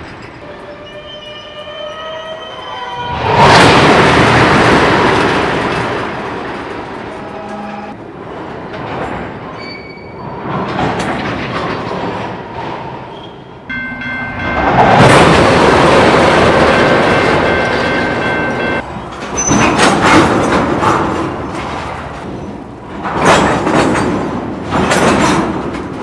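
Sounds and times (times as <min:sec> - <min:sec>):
crossing warning bell ringing: 0:00.0 - 0:03.2, 0:13.7 - 0:19.7
freight train rolling past: 0:00.0 - 0:26.0
train couplers clanking: 0:00.0 - 0:26.0.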